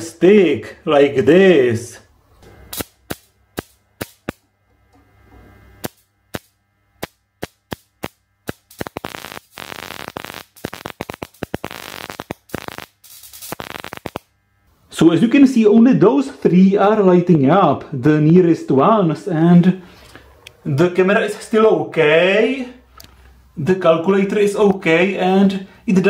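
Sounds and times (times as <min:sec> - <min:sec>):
high-voltage electrical snaps: 0:02.4 - 0:04.5, 0:05.6 - 0:14.4.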